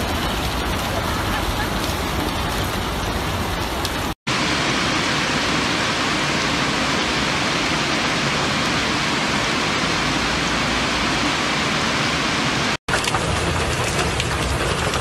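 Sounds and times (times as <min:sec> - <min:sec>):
hail falling: 0:00.0 - 0:09.5, 0:12.9 - 0:15.0.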